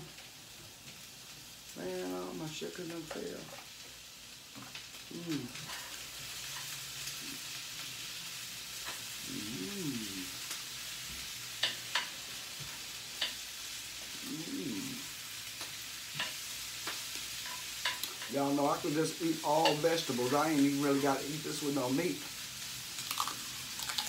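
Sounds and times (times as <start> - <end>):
steady hiss: 0.0 - 24.0
person humming mmm: 5.0 - 5.8, 9.2 - 10.6, 14.0 - 15.2
crunching and chewing taco shell: 23.0 - 24.0.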